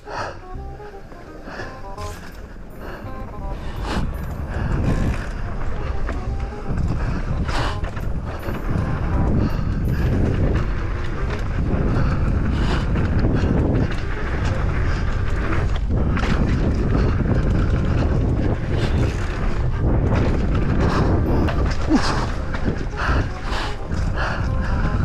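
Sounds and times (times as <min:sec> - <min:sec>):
tyres rumbling on dirt trail: 0:00.0 - 0:25.0
wind buffeting microphone: 0:00.0 - 0:25.0.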